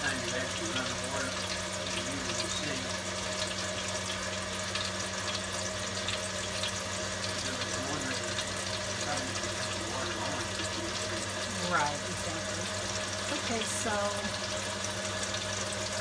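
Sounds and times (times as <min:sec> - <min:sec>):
faucet water running into sink: 0:00.0 - 0:16.0
steady low hum: 0:00.0 - 0:16.0.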